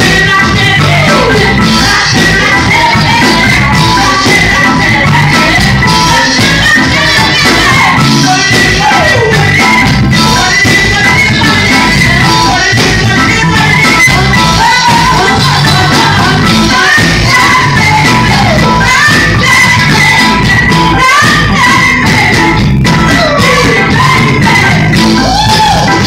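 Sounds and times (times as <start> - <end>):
drums: 0.0 - 26.0
electric guitar: 0.0 - 26.0
woman singing into microphone: 0.0 - 26.0.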